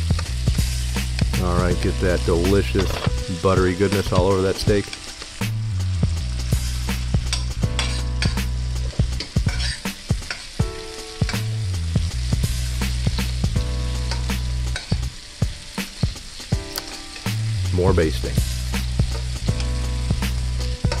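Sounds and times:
background music with bass: 0:00.0 - 0:21.0
butter sizzling in a pan: 0:00.0 - 0:21.0
metal spoon clinking on a pan: 0:09.5 - 0:10.5.

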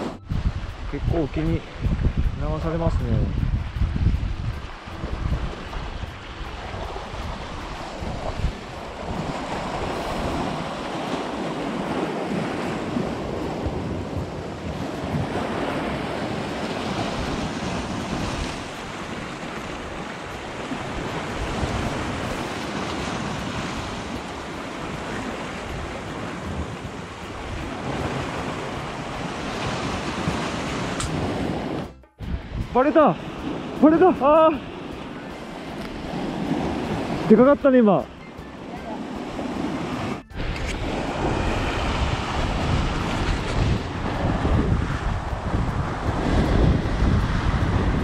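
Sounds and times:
wind buffeting microphone: 0:00.0 - 0:48.0
waves breaking against rocks: 0:04.6 - 0:31.9, 0:32.8 - 0:38.0.

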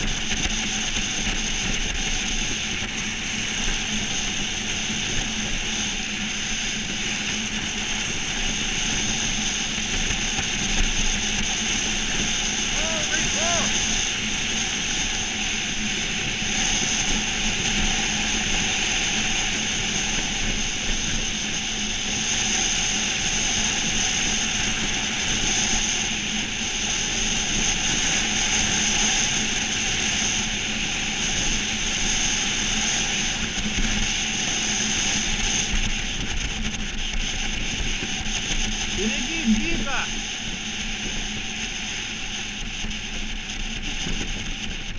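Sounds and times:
steady high whine: 0:00.0 - 0:32.2, 0:33.2 - 0:44.9
runners hissing on ice: 0:12.5 - 0:14.0.

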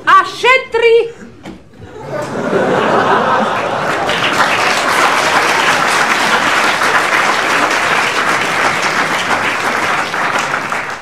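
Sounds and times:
audience applauding: 0:02.5 - 0:11.0.

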